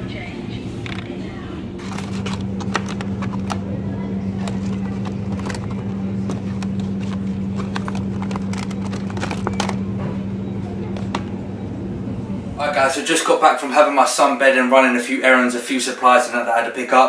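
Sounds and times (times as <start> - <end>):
steady low hum: 0.0 - 17.0
plastic packaging clicks and crinkles: 1.8 - 3.7, 4.3 - 9.9.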